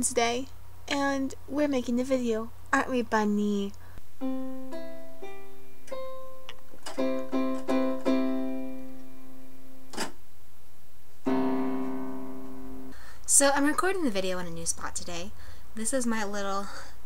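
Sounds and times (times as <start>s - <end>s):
electronic keyboard notes: 4.2s - 10.0s, 11.2s - 13.0s.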